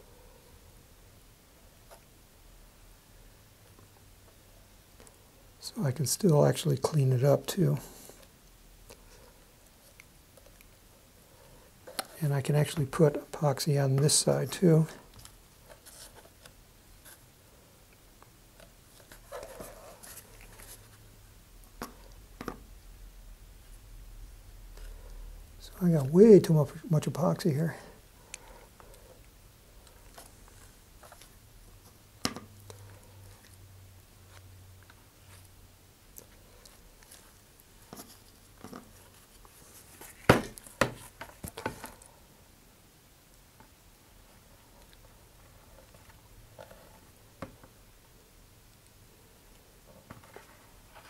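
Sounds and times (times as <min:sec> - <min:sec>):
gloved hands rubbing and scraping: 0:36.7 - 0:41.8.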